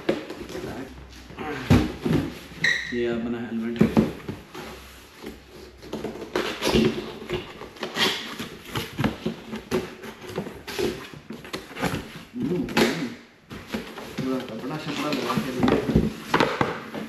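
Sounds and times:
tape scraping and rustling: 3.9s - 12.4s, 13.5s - 17.0s.

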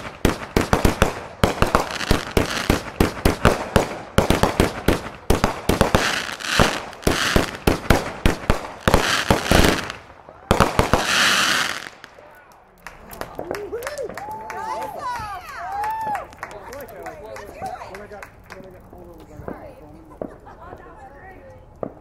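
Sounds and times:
fireworks hissing: 0.0s - 12.0s
fireworks bangs: 0.0s - 12.3s.

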